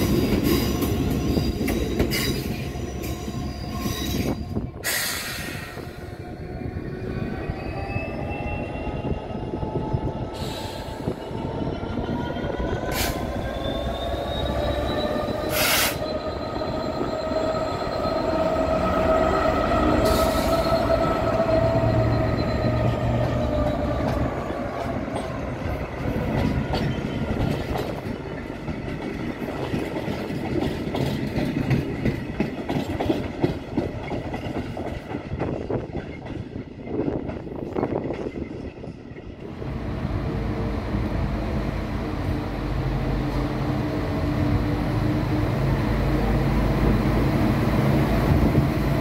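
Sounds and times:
diesel locomotive running: 0.0s - 49.0s
wagon wheels squealing: 13.2s - 23.9s.

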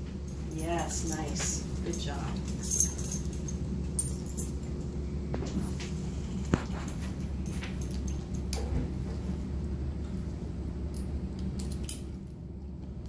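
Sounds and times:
low room hum: 0.0s - 13.0s
harness buckles jingling: 0.3s - 4.8s.

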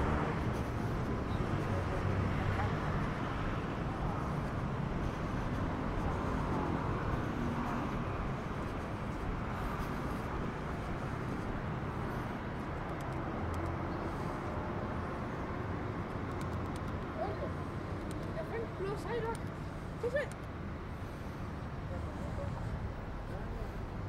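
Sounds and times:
vehicle traffic: 0.0s - 24.0s.

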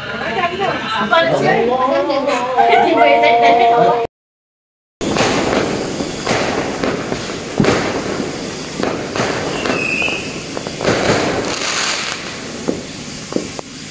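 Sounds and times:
firework bangs: 5.0s - 13.9s
firework whistle: 5.0s - 13.9s
fireworks bursting and crackling: 5.0s - 13.9s.

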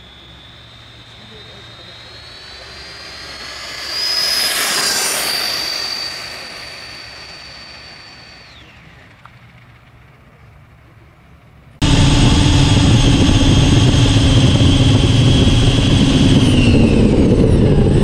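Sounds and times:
model jet turbine whine: 0.0s - 18.0s
rush of exhaust: 0.0s - 18.0s.

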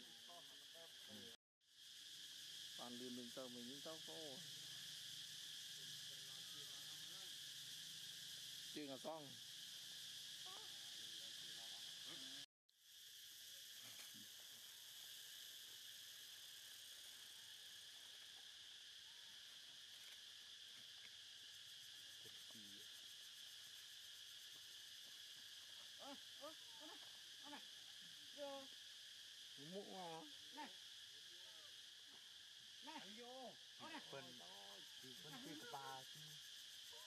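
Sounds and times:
forest insects droning: 0.0s - 37.0s.

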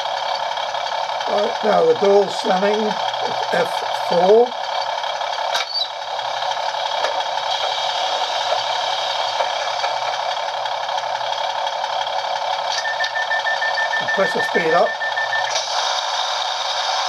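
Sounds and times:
model train diesel engine idling: 0.0s - 17.0s
short high beeps: 12.8s - 15.5s.

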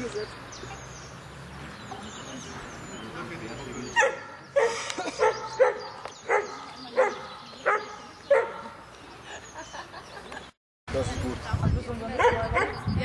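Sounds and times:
dog barking: 4.0s - 8.8s, 12.2s - 12.8s.

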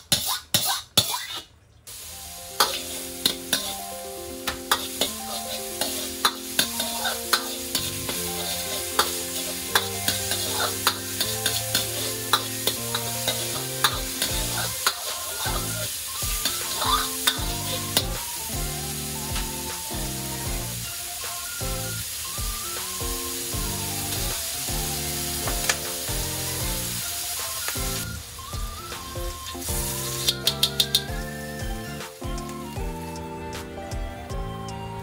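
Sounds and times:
meat sizzling in oil: 1.9s - 33.2s
soft background music: 1.9s - 35.0s
ladle clinking and scraping wok: 2.5s - 18.4s, 29.5s - 31.1s.

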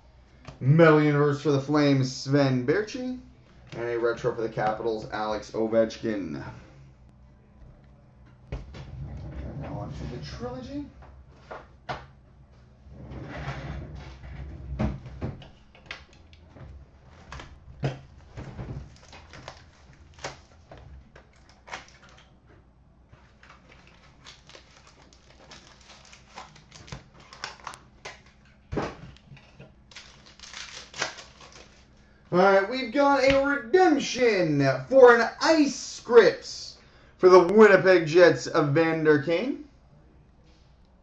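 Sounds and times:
faint steady hum: 0.0s - 41.0s
cardboard and wrapper rustling: 17.0s - 22.3s, 23.1s - 32.0s.

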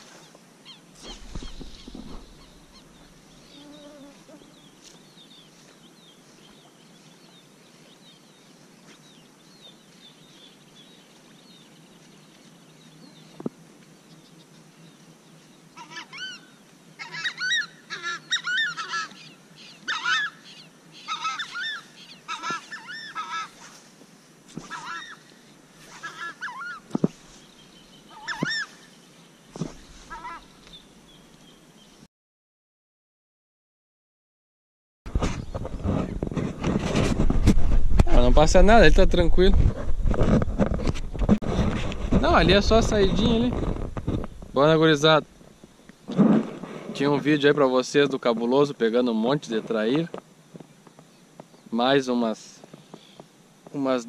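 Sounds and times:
wetland birds calling: 0.0s - 8.2s, 15.6s - 23.8s, 24.6s - 30.9s.

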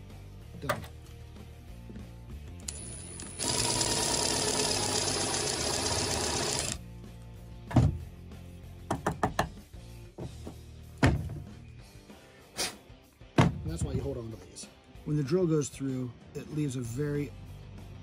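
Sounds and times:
cordless drill boring through plastic: 2.7s - 6.8s.

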